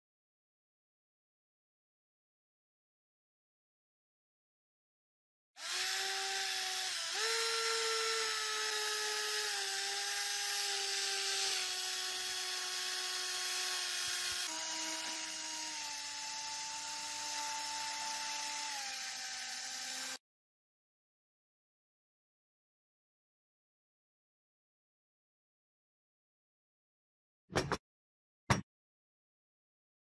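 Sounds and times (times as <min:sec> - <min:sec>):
rotary tool whining on metal: 0:05.6 - 0:20.2.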